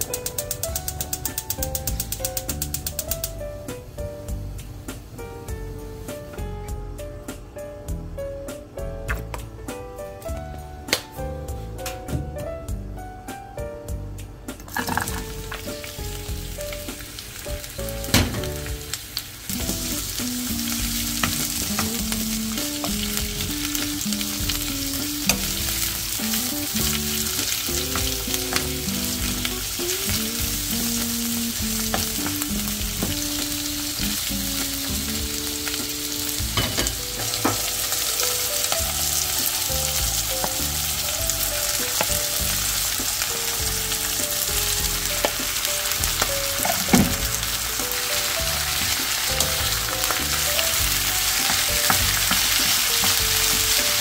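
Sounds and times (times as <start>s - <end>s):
spatula clicking against pan: 0.0s - 3.4s
food sizzling in a wok: 0.0s - 6.6s, 14.7s - 54.0s.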